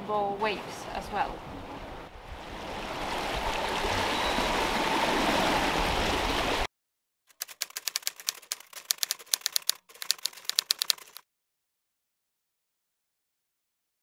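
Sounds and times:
rough sea breaking: 0:00.4 - 0:06.7
typewriter key clicks: 0:07.3 - 0:11.2.

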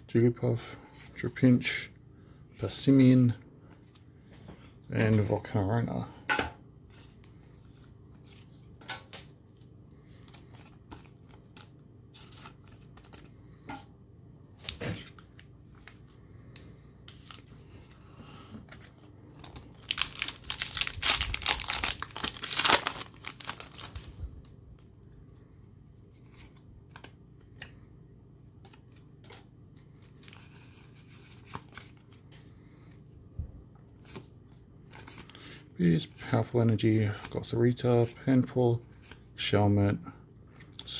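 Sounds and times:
foil wrapper tearing and crinkling: 0:19.3 - 0:24.2.

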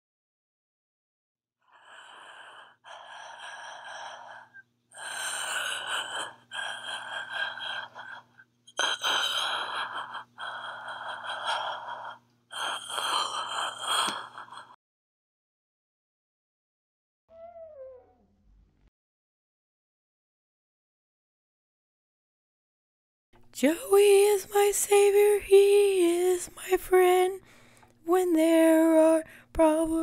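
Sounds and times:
faint electrical hum: 0:23.4 - 0:30.0.

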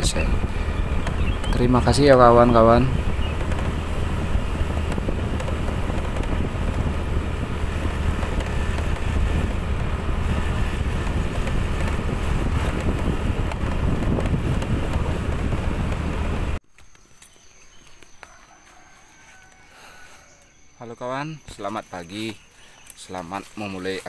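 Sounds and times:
wind buffeting microphone: 0:00.0 - 0:16.6
vehicle engine and road noise: 0:00.0 - 0:16.7.

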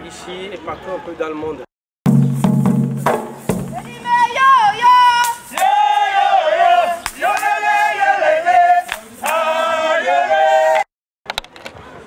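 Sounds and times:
group of voices singing: 0:05.6 - 0:10.9.

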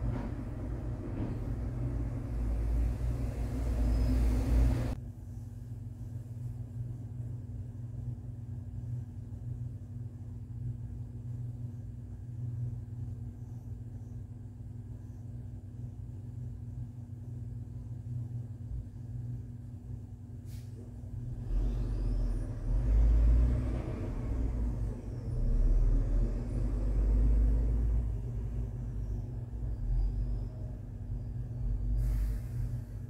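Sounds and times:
low rumble: 0:00.0 - 0:05.0
steady low hum: 0:00.0 - 0:33.0.

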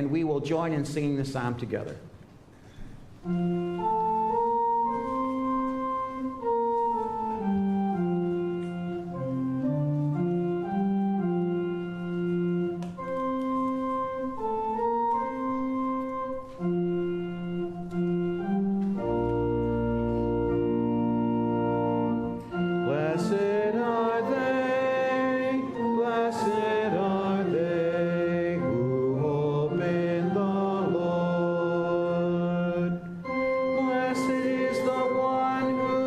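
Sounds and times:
church organ playing: 0:03.1 - 0:36.0
people singing: 0:22.9 - 0:33.0, 0:33.8 - 0:36.0.

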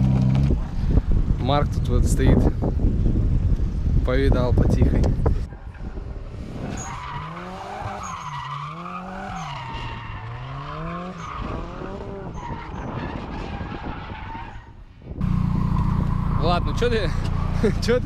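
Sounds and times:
car engine revving: 0:05.8 - 0:13.6, 0:15.2 - 0:18.0.

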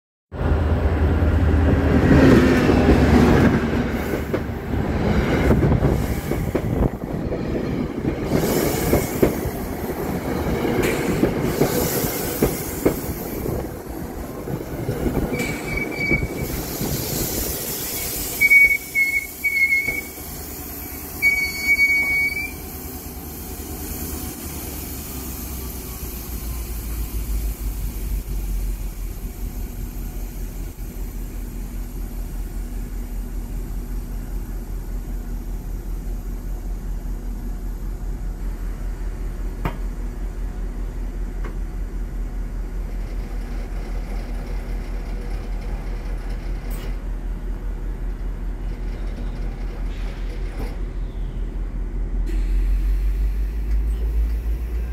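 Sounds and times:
train wheels rumbling and clacking: 0:00.5 - 0:54.9
brakes squealing: 0:15.2 - 0:23.0.

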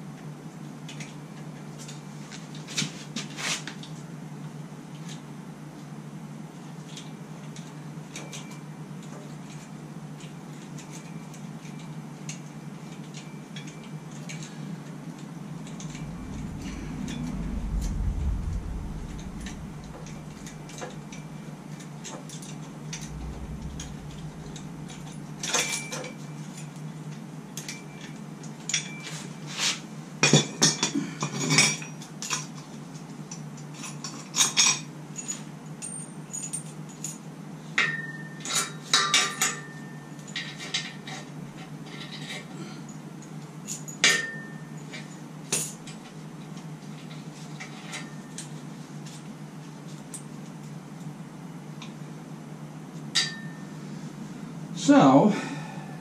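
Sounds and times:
low rumble: 0:15.4 - 0:26.6.

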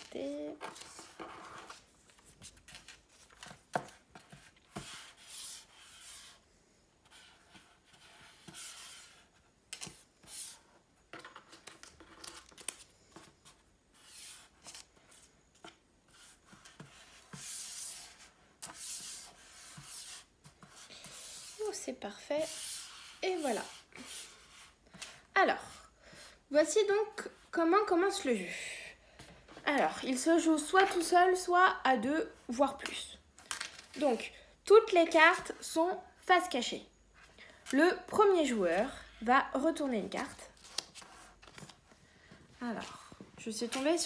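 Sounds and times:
paper rubbing on wood: 0:16.1 - 0:24.8.

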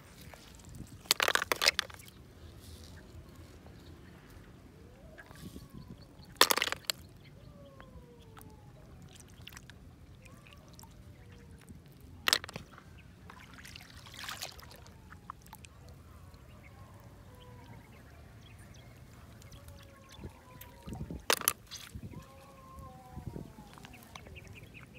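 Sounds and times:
snail shells clacking: 0:00.3 - 0:03.3, 0:06.2 - 0:08.5, 0:11.8 - 0:12.8, 0:20.6 - 0:22.0.

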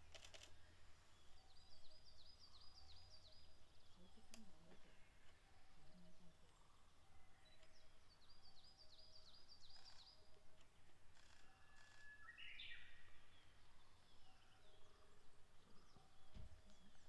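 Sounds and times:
small birds singing: 0:00.0 - 0:17.0.

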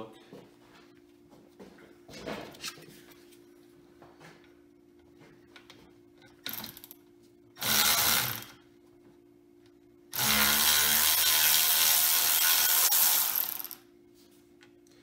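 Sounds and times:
cordless electric ratchet running: 0:07.6 - 0:08.6, 0:10.2 - 0:13.8.

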